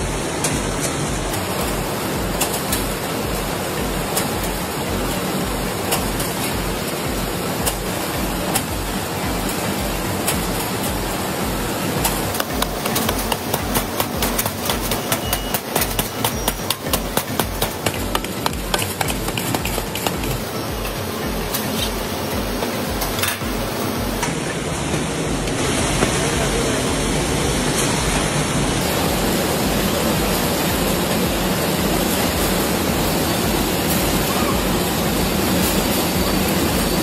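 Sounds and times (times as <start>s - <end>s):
packing machinery clatter: 0.2s - 26.8s
sharp clicks and knocks: 12.0s - 23.6s.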